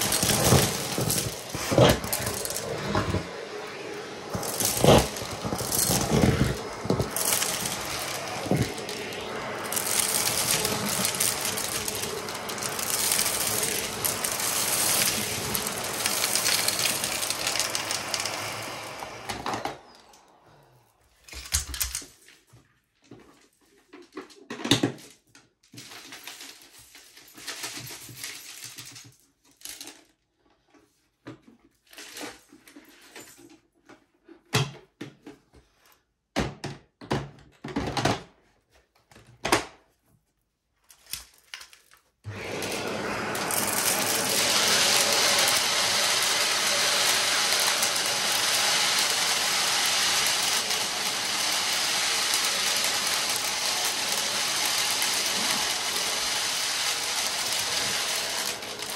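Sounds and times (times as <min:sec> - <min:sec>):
vacuum cleaner running: 0:00.0 - 0:21.8, 0:42.2 - 0:58.9.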